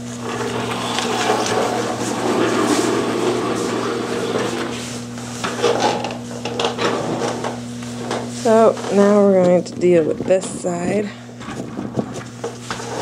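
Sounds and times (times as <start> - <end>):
steady low hum: 0.0 - 13.0
handling noise rubbing and scraping: 0.2 - 9.6.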